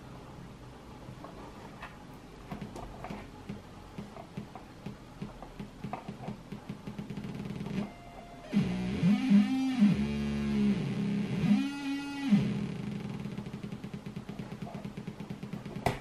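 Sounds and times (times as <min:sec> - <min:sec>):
mains hum: 0:00.0 - 0:16.0
low buzzy oscillator tone: 0:06.8 - 0:15.6.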